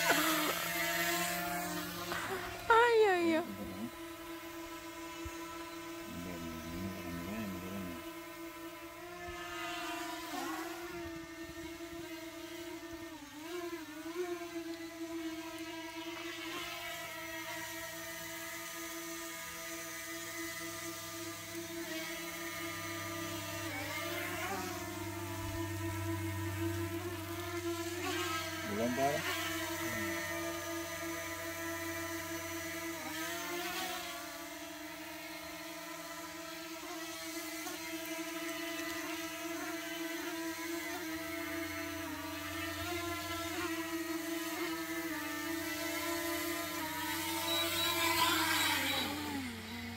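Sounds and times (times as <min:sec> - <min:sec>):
drone propellers whining: 0:00.0 - 0:09.5, 0:46.4 - 0:49.9.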